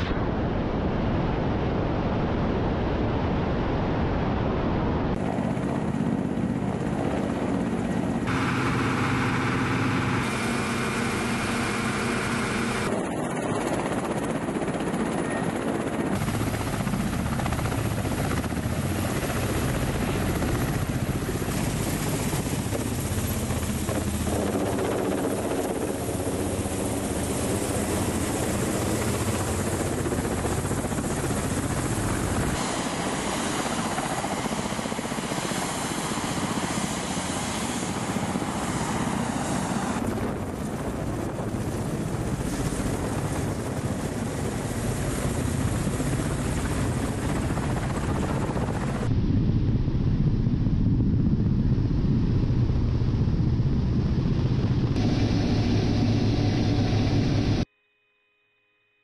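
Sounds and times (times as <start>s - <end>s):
helicopter turbine and rotor noise: 0.0s - 57.7s.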